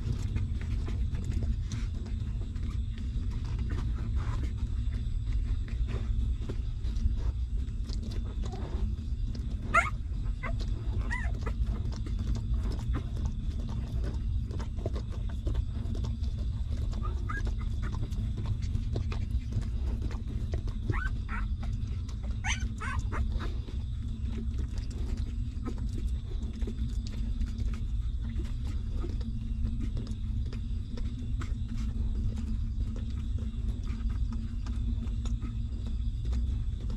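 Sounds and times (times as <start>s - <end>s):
low rumble: 0.0s - 36.9s
puppies suckling: 0.0s - 36.9s
puppies squeaking and whimpering: 9.4s - 13.2s, 16.7s - 18.7s, 20.0s - 23.8s.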